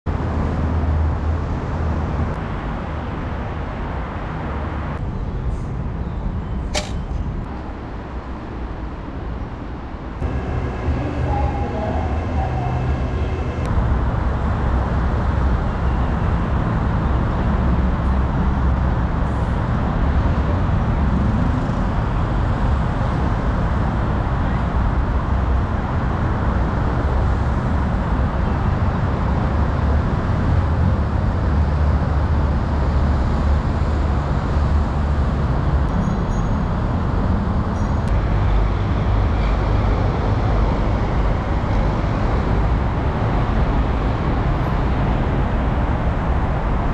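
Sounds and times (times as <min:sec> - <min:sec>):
road traffic: 0:00.0 - 0:46.9
train hum: 0:00.2 - 0:46.9.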